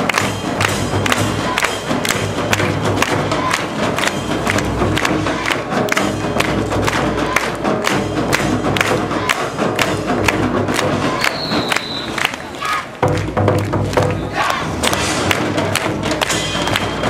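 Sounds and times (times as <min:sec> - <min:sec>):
crowd: 0:00.0 - 0:17.0
festival drums and gongs: 0:00.0 - 0:17.0
people shouting: 0:03.0 - 0:03.8, 0:09.0 - 0:09.6, 0:11.0 - 0:13.0, 0:14.1 - 0:15.0.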